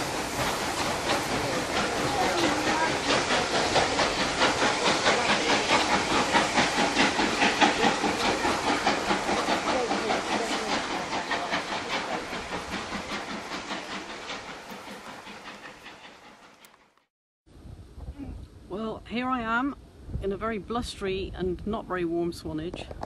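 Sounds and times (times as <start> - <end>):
hiss of steam: 0.0 - 16.6
steam locomotive exhaust beats: 0.0 - 17.0.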